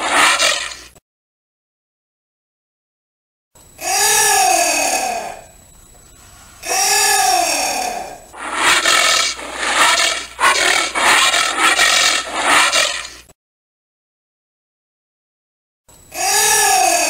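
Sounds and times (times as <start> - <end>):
anteater calling: 8.4 - 13.2.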